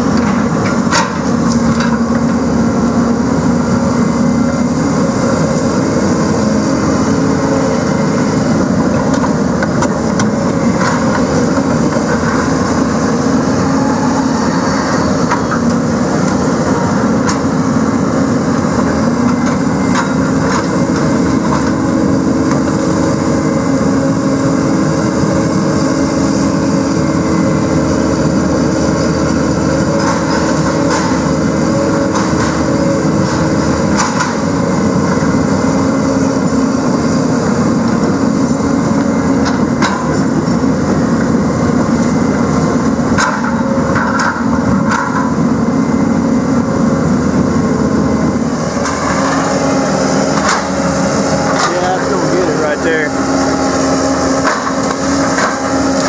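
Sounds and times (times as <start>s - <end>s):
excavator diesel engine and hydraulics: 0.0s - 56.0s.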